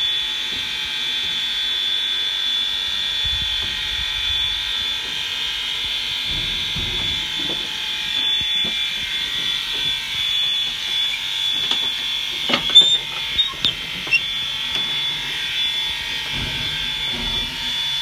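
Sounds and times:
steam hissing and whining: 0.0 - 18.0
firebox door clanking: 6.0 - 18.0.

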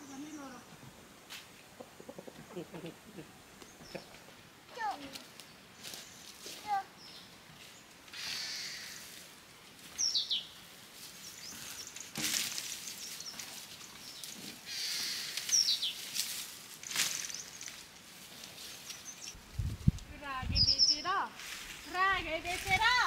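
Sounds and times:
soft hiss: 0.0 - 23.0
bird chirping: 6.9 - 9.0, 9.9 - 10.6, 12.8 - 16.1, 18.8 - 19.4, 20.5 - 21.2.

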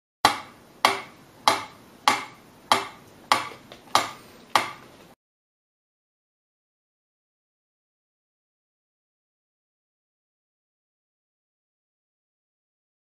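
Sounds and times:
metronome ticking: 0.3 - 4.9.

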